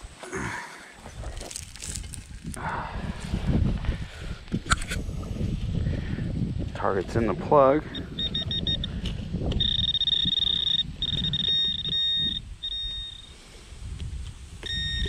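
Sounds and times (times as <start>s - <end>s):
dirt rustling and crumbling: 0.0s - 7.9s
steady detector tones: 6.9s - 15.0s
short high-pitched beeps: 7.9s - 13.3s, 14.6s - 15.0s.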